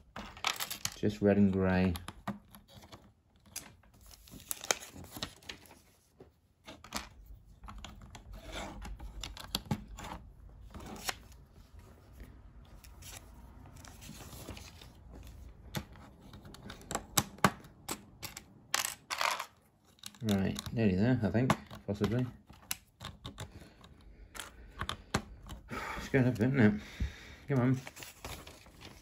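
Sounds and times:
paper pages rustling: 2.7s - 16.9s, 27.5s - 29.0s.

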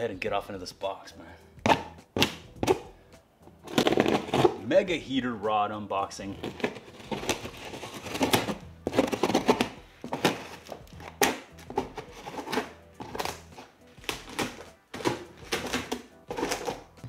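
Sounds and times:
knife cutting packing tape: 6.4s - 16.9s.

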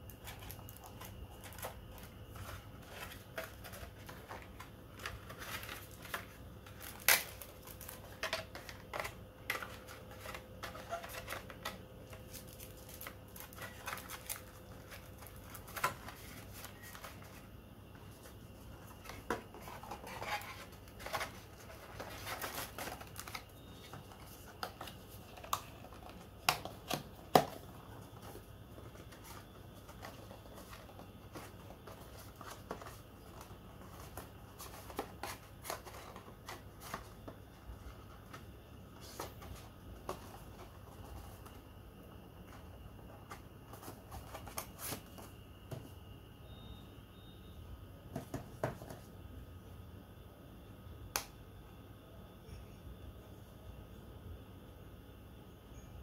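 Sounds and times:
packaging rustling: 0.0s - 41.6s.

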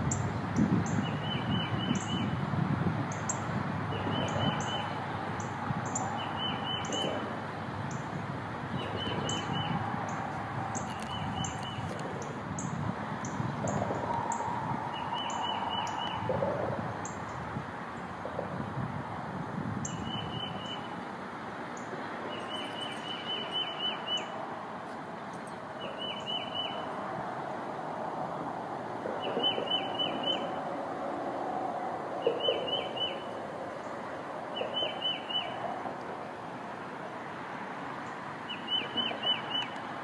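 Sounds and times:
songbirds alarm calls: 0.1s - 2.4s, 3.1s - 17.4s, 29.0s - 30.6s, 34.6s - 35.6s.

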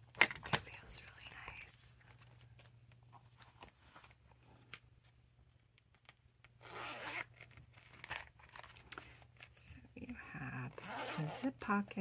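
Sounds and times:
zipper rasping: 6.6s - 8.3s, 10.7s - 11.7s.

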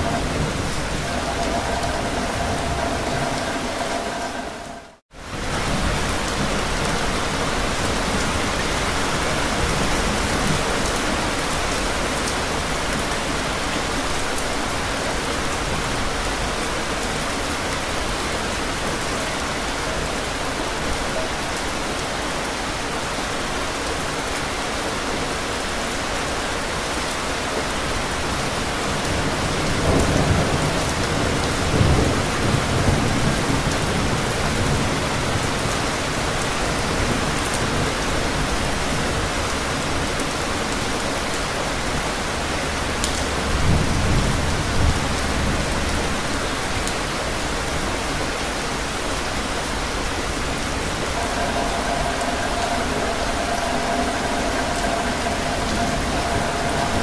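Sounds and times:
thunder rumbling: 0.0s - 8.8s, 49.7s - 57.0s
steady rain hiss: 0.0s - 57.0s.

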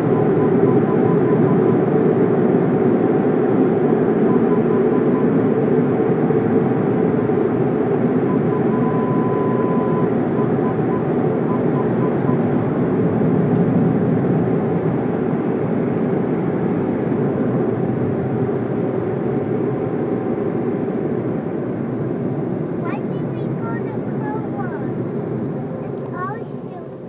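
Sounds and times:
parking sensor beeping: 0.0s - 1.9s, 4.2s - 5.4s, 8.2s - 12.5s.

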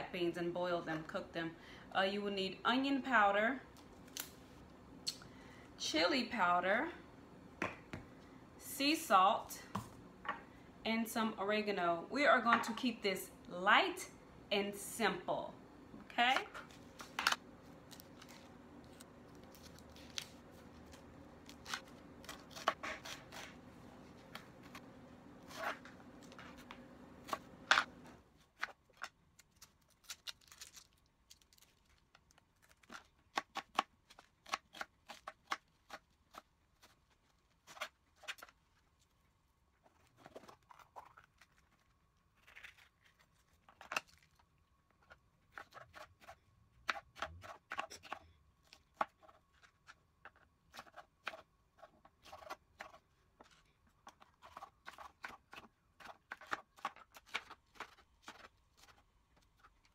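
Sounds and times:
low steady hum: 0.0s - 37.6s
dry onion skin crackling: 17.7s - 23.6s, 28.5s - 39.1s, 39.8s - 44.5s.

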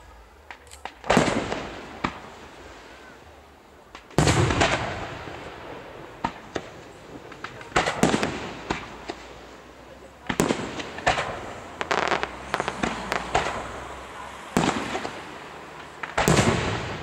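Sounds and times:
firework crackling pops: 0.4s - 3.2s, 3.8s - 17.0s
firework shells bursting: 10.3s - 17.0s.

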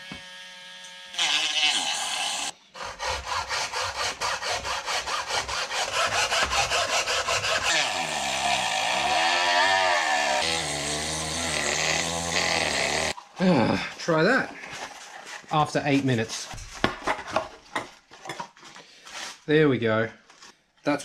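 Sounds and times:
hacksaw cutting plastic: 1.2s - 13.2s
rasping scrape: 1.7s - 13.2s.

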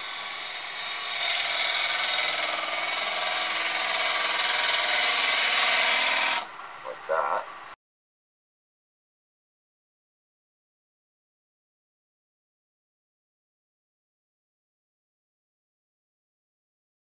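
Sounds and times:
wood lathe cutting hiss: 0.0s - 6.5s.

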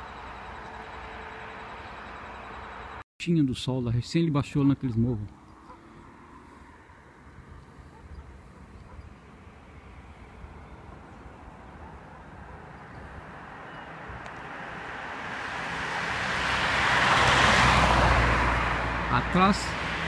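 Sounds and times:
vehicle passing: 5.3s - 20.0s.

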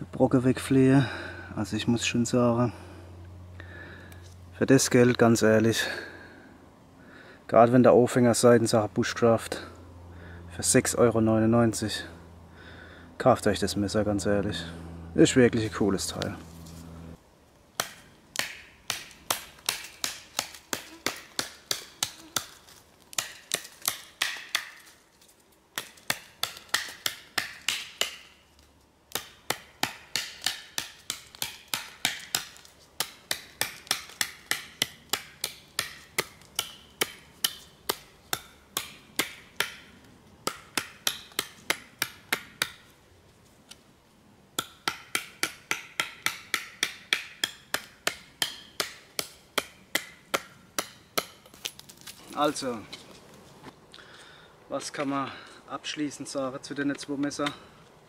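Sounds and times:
knife chopping wooden stick: 17.8s - 24.9s, 25.8s - 28.3s, 29.1s - 42.8s, 44.6s - 51.6s.

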